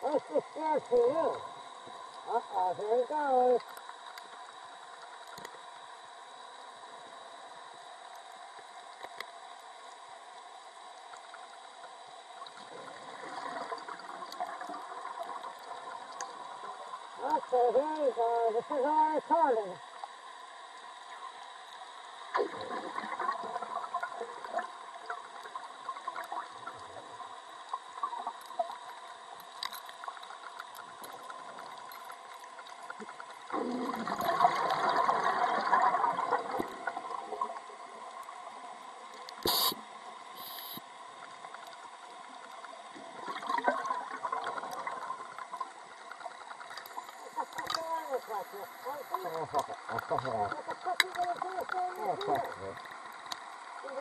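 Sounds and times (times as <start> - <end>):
faint crackle of tiny clicks: 0.0 - 2.3, 3.6 - 17.5, 19.8 - 54.0
underwater bubbling and gurgling: 0.0 - 54.0
short sharp sound: 39.4 - 39.8.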